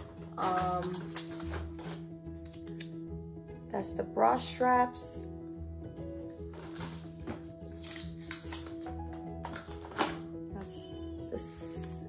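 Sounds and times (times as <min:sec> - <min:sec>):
plastic parts clicking and rustling: 0:00.0 - 0:02.8, 0:06.5 - 0:10.3
background music with held notes: 0:00.0 - 0:12.0.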